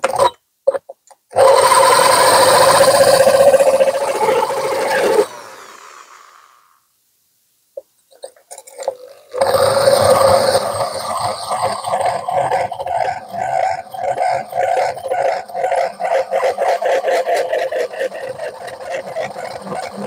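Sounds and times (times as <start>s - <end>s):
drill grinding into clay pot: 1.3s - 6.4s, 8.2s - 20.0s
drill motor winding down: 1.4s - 6.7s, 16.5s - 20.0s.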